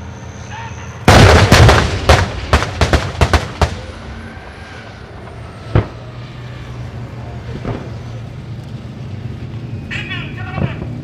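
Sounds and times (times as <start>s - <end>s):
gunfire and shell explosions: 1.1s - 3.8s.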